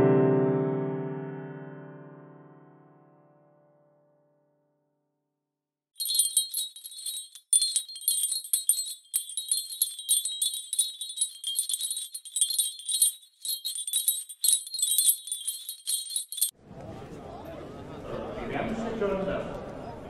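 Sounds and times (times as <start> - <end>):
metallic jingling and tinkling: 6.0 - 16.5.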